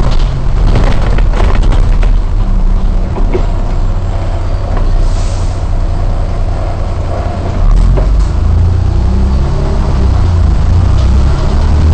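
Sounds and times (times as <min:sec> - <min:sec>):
bus engine rumble: 0:00.0 - 0:11.9.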